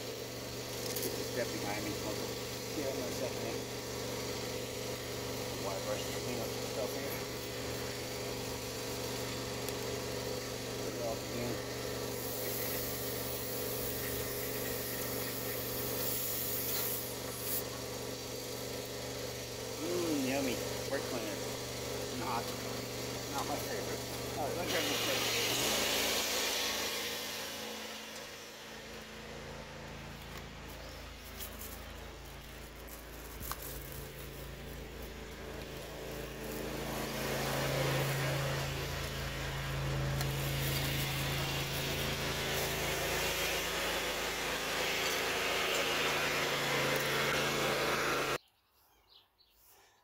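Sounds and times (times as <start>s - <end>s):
low mechanical hum: 0.0s - 48.4s
aerosol spray hiss: 12.1s - 17.7s, 24.6s - 28.2s
background hum: 26.6s - 45.9s.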